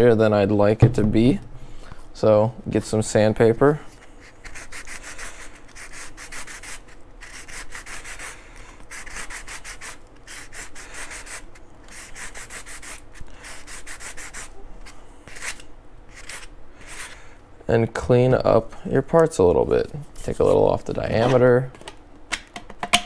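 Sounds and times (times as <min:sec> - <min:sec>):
sanding block rubbing plastic: 0:04.4 - 0:08.3, 0:08.9 - 0:14.5.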